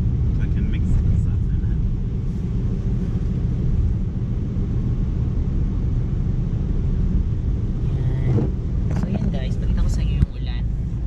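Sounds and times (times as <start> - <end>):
car cabin road and engine rumble: 0.0 - 11.0
tyres on wet road: 0.0 - 11.0.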